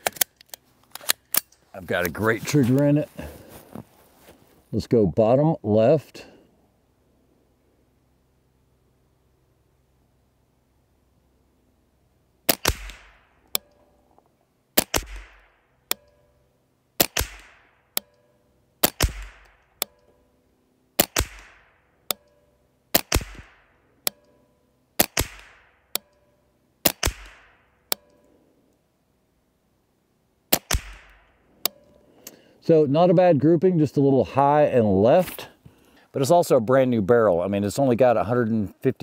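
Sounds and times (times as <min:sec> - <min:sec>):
rifle shots cracking: 0:12.5 - 0:13.4, 0:14.8 - 0:15.6, 0:17.0 - 0:17.8, 0:18.8 - 0:19.6, 0:21.0 - 0:21.9, 0:22.9 - 0:23.8, 0:25.0 - 0:25.9, 0:26.8 - 0:27.7, 0:30.5 - 0:31.4.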